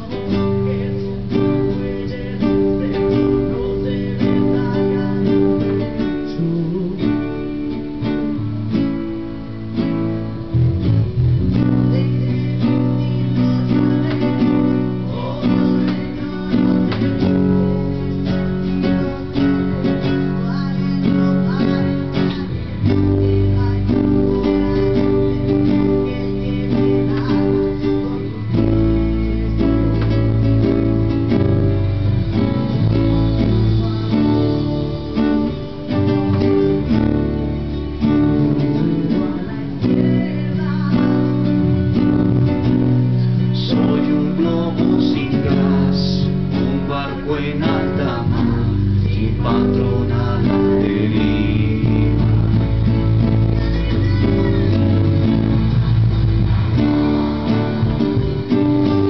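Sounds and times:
acoustic guitar strumming: 0.0 - 59.0.

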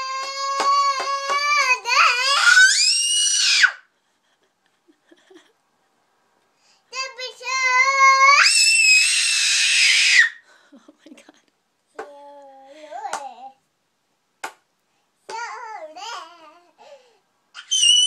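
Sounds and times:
toddler singing: 0.0 - 2.6, 6.9 - 8.4, 12.0 - 13.6, 15.3 - 16.8.

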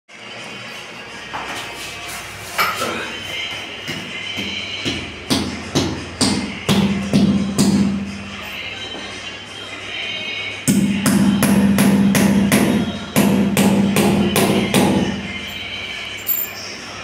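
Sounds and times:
background music: 0.1 - 17.0.

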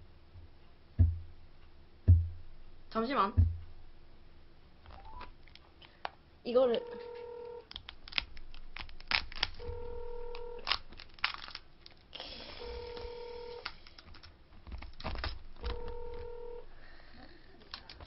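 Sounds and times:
crab shell cracking: 7.6 - 9.7, 10.6 - 12.1.

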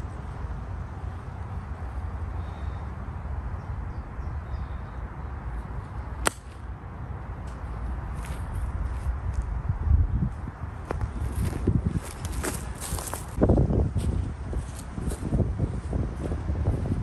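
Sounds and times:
golf club striking ball: 6.2 - 6.6.

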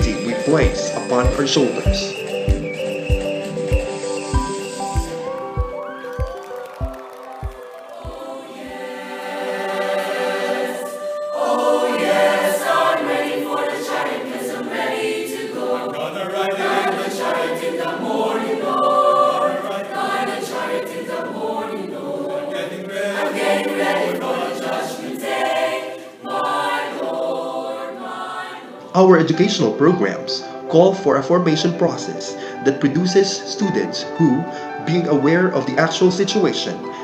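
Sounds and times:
school choir singing: 0.0 - 6.1, 6.7 - 30.1.

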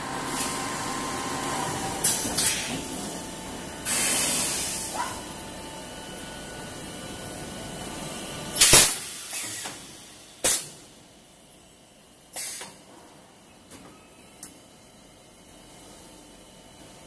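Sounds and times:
compressed air hissing: 3.8 - 5.0
short sharp air blasts: 3.8 - 5.0, 8.6 - 10.8, 12.4 - 12.8.

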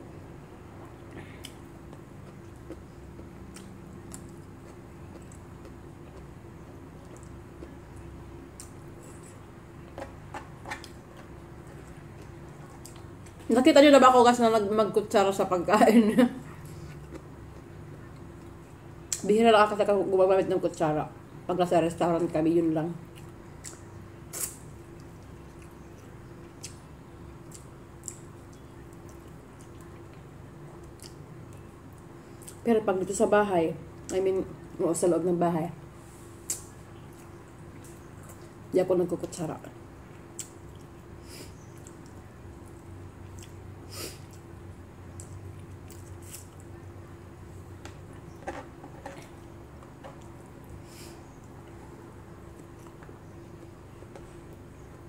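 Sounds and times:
steady low hum: 0.0 - 55.0
person chewing food: 0.9 - 13.4, 16.5 - 19.2, 23.1 - 32.6, 40.1 - 44.5, 45.1 - 46.8, 50.1 - 54.7.

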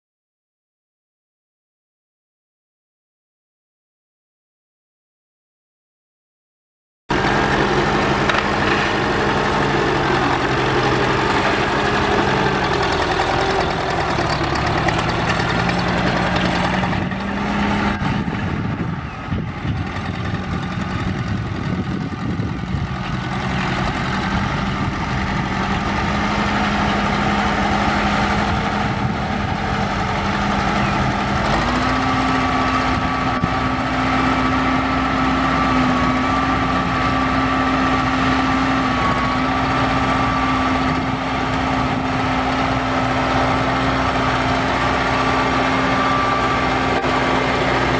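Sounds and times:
tractor diesel engine running: 7.1 - 47.9.

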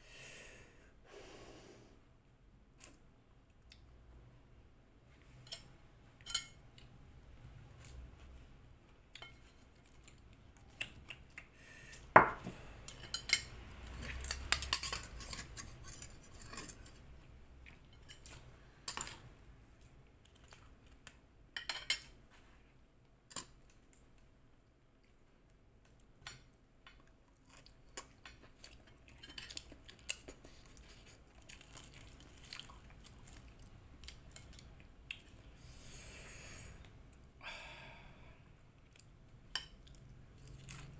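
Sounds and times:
cutlery clinking and scraping on plate: 5.4 - 6.6, 12.2 - 17.0, 21.6 - 22.2.

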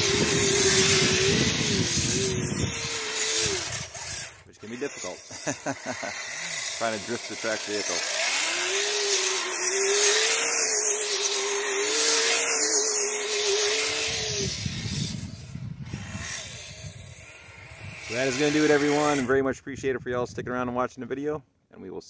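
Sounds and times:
plastic tracks churning snow: 0.0 - 16.7, 17.9 - 19.3
electric motors whining: 0.0 - 19.4.

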